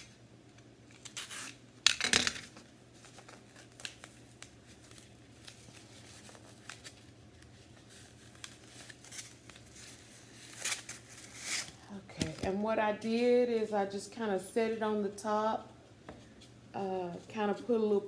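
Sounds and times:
plastic wrap tearing and crinkling: 0.9s - 2.0s, 3.0s - 11.8s.

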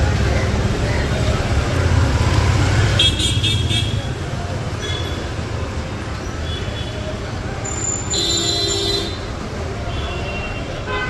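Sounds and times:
traffic rumble: 0.0s - 11.0s.

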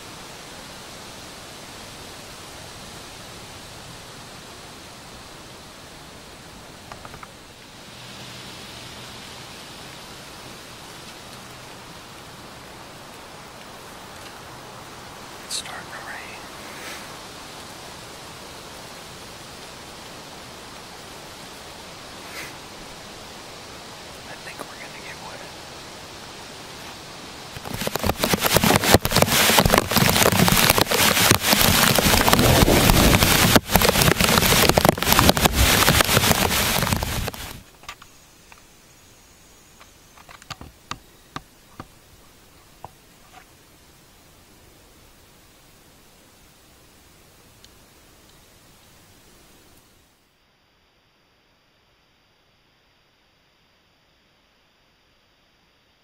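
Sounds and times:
heavy rain patter: 0.0s - 38.6s
steady ambient hiss among trees: 0.0s - 56.0s.

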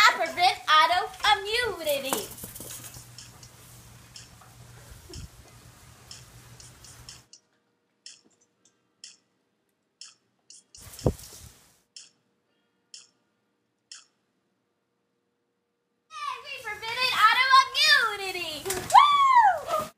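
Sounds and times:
clock ticking: 3.1s - 5.4s, 6.0s - 9.4s, 10.0s - 11.2s, 11.9s - 12.3s, 12.9s - 14.3s.

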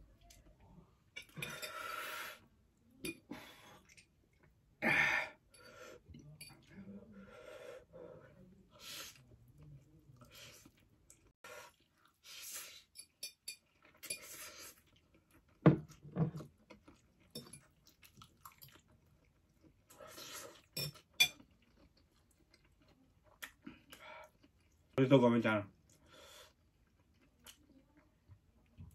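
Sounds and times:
person chewing: 9.1s - 25.0s, 25.8s - 28.1s.

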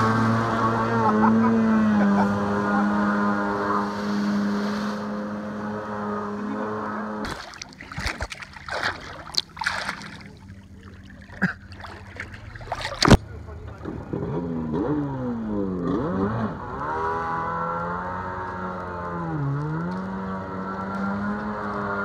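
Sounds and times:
jet ski engine running: 0.0s - 22.0s
water sloshing and splashing: 7.2s - 14.1s.

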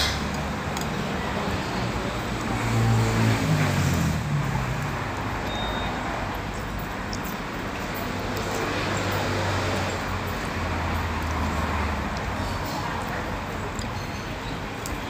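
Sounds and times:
vehicle engine passing: 0.0s - 5.4s
steady traffic hum: 0.0s - 15.0s.

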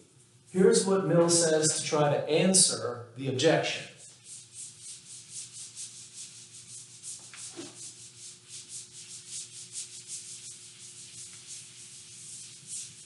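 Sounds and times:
eraser scrubbing whiteboard: 4.0s - 13.0s.

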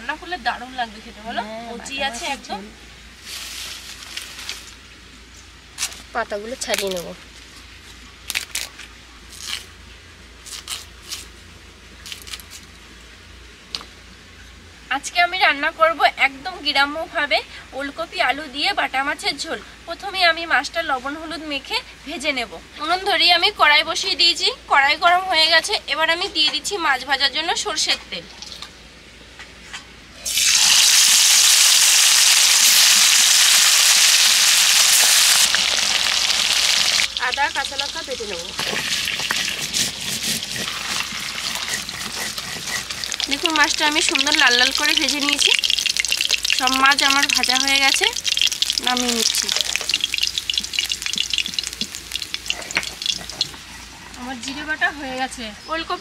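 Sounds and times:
vegetable crunching and snapping: 8.2s - 9.7s, 10.4s - 11.3s, 12.0s - 12.7s, 48.0s - 53.7s
fish sizzling in hot oil: 30.2s - 53.7s
oil popping: 30.3s - 53.9s.

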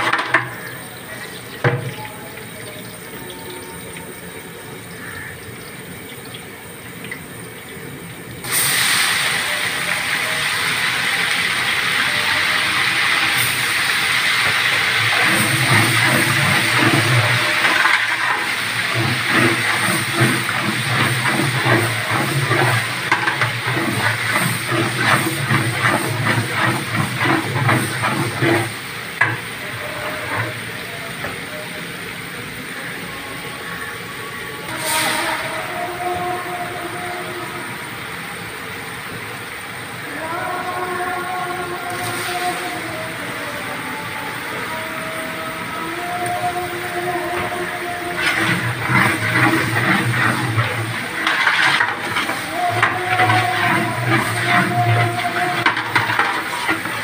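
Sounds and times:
loud steady hiss: 0.0s - 57.0s
ladle stirring rice in water: 12.5s - 31.2s, 46.3s - 57.0s
liquid bubbling in pot: 12.8s - 31.5s, 46.3s - 57.0s.

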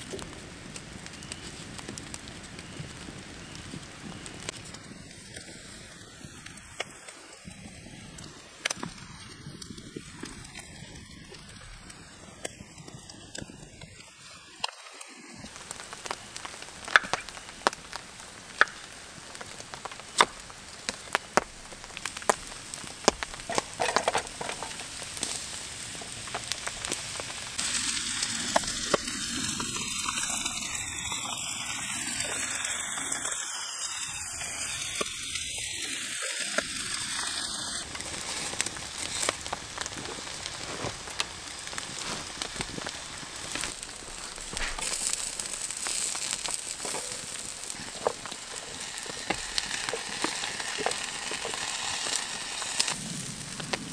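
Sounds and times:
campfire crackling and popping: 0.0s - 53.9s
meat sizzling on grill: 0.0s - 53.9s
vegetables frying in pan: 13.7s - 53.9s.

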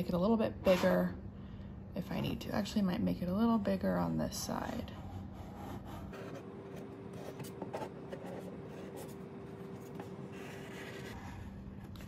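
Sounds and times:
faint steady hum: 0.0s - 12.0s
marker scratching on plastic: 5.0s - 11.6s.

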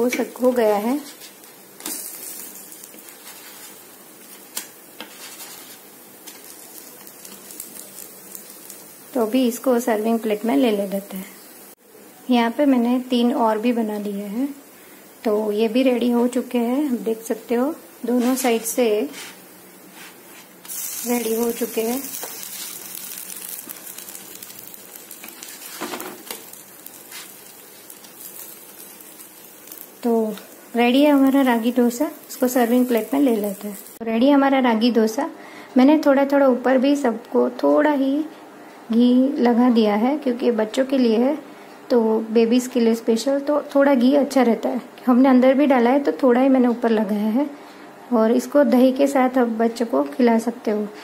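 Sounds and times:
dosas sizzling on a pan: 0.0s - 34.1s.

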